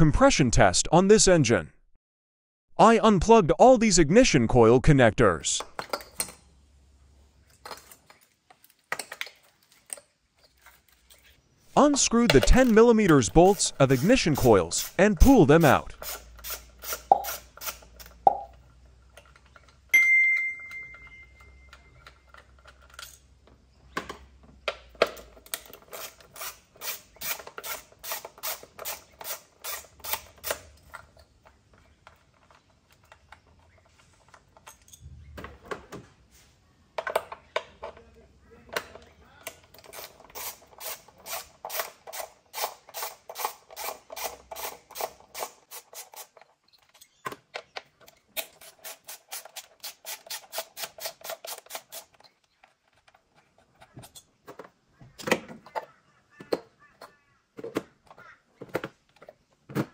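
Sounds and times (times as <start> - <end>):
sharp metallic clink: 20.0 - 21.7.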